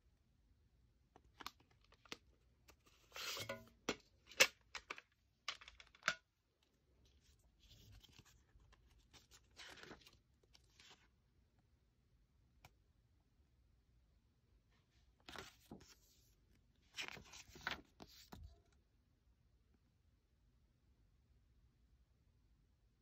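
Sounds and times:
paper booklet rustling: 7.1 - 11.1, 15.2 - 16.3, 16.9 - 18.5.

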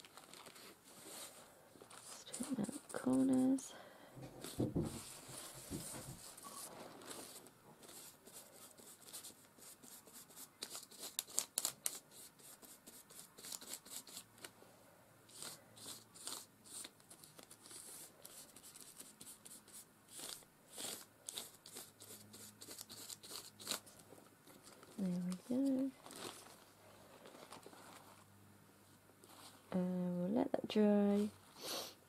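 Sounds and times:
paper crinkling: 0.0 - 3.6, 4.4 - 12.6, 15.3 - 28.2
paintbrush scratching on paper: 4.4 - 14.3, 15.3 - 23.9.

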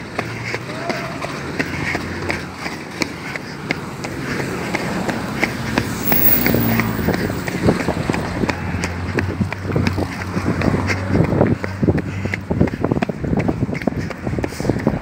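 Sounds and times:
running footsteps on concrete: 0.0 - 15.0.

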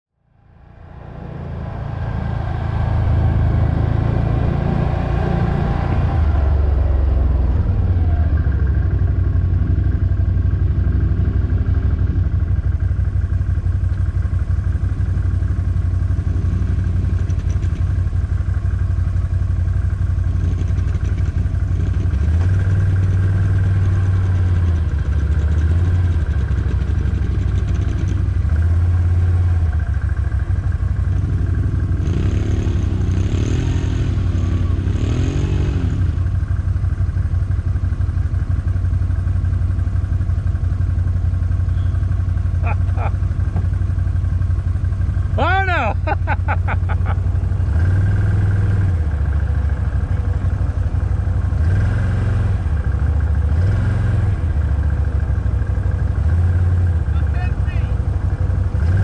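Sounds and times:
atv engine running: 0.3 - 59.0.

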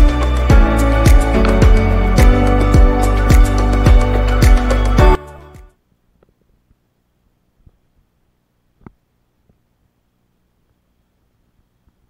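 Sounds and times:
background music with steady beat: 0.0 - 5.8.

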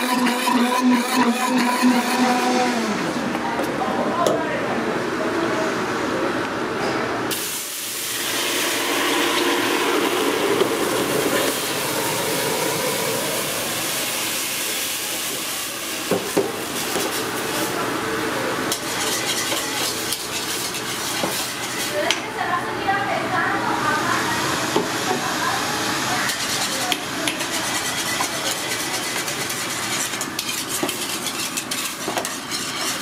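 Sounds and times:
whisk clicking against a pot: 26.3 - 33.0.

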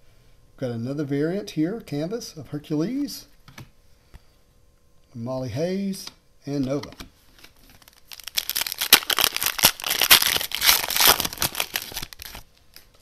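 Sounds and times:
plastic wrapper tearing and crinkling: 7.4 - 13.0.

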